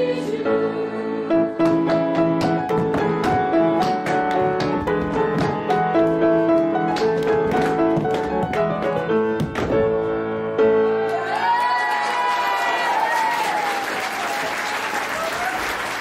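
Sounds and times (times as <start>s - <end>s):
piano dance tune: 0.0s - 12.6s
feet tapping on wooden stage: 1.6s - 10.0s.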